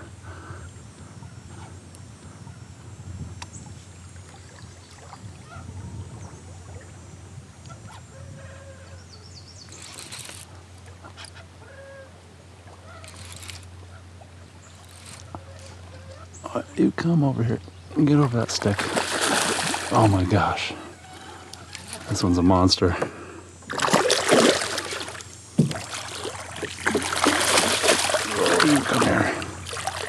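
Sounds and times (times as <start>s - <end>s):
faint bird calls: 7.6s - 16.9s, 19.9s - 22.4s
fish splashing at the surface: 18.6s - 20.1s, 23.7s - 30.0s.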